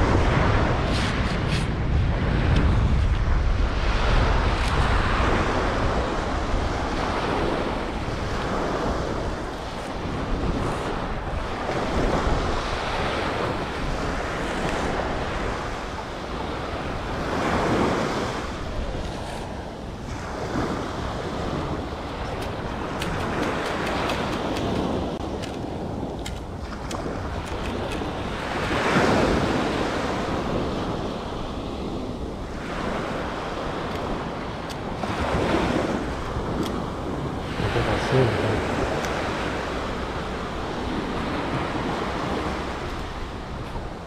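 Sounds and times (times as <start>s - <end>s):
ocean surf washing onto beach: 0.0s - 44.0s
wind buffeting microphone: 0.0s - 44.0s.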